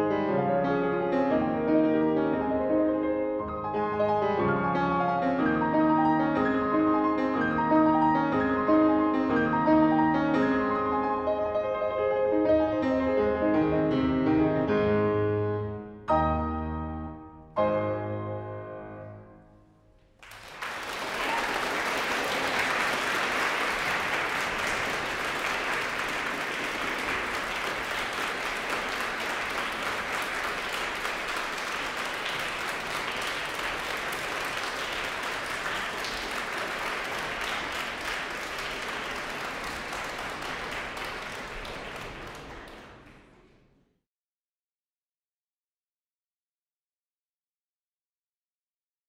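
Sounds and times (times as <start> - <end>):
audience applauding: 20.2 - 43.5.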